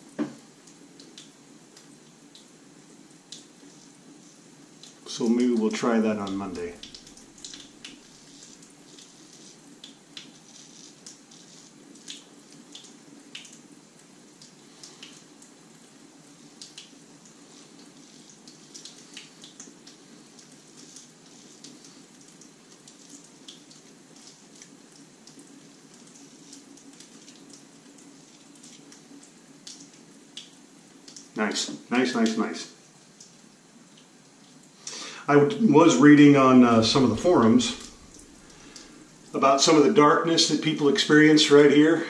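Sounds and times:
low steady hum: 3.6s - 9.5s, 35.3s - 40.1s.

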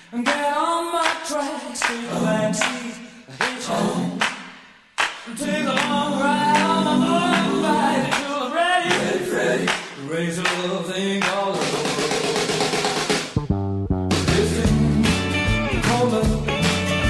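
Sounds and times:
voices singing in harmony: 1.0s - 4.6s, 5.2s - 12.8s.

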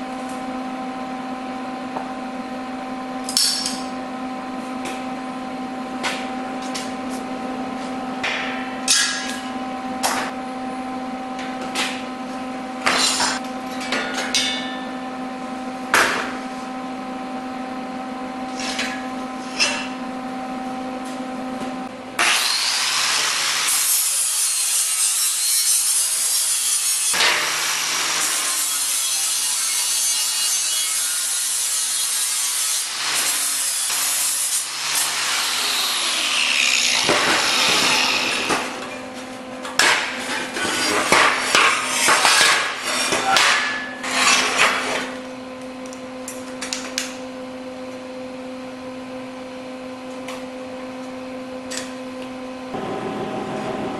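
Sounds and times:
angle grinder grinding steel: 22.2s - 38.9s
steady hum: 52.6s - 53.9s.

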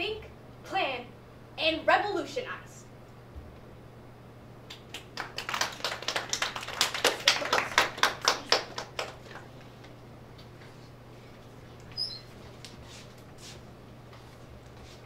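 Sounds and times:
small group clapping: 4.7s - 9.6s.

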